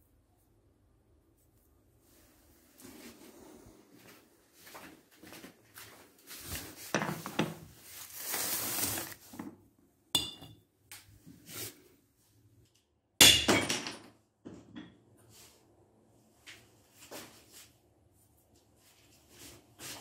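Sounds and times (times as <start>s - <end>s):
rustling and light knocks: 4.0s - 9.6s.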